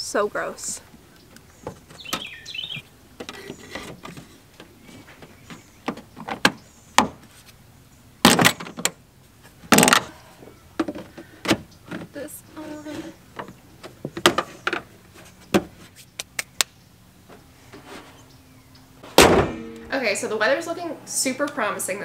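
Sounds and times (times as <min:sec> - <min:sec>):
loud clunks: 0:19.0 - 0:19.9.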